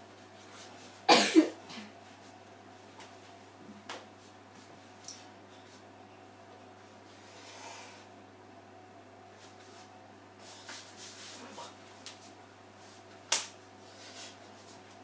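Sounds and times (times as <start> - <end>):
sharp hand clap: 13.3 - 13.6.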